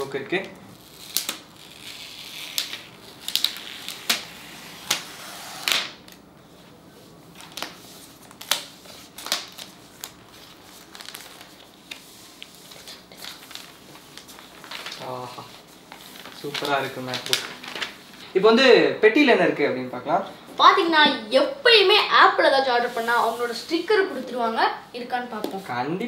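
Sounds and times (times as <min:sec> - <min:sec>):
plastic wrap crinkling: 0:00.7 - 0:06.2, 0:07.3 - 0:18.4.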